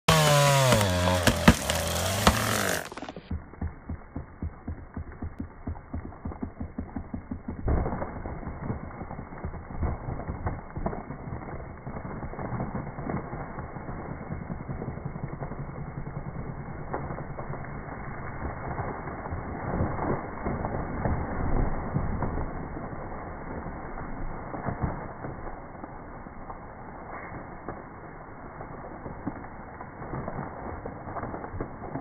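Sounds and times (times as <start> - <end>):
chainsaw revving: 0.0 - 7.6
slowed deep engine pulses: 0.0 - 19.8.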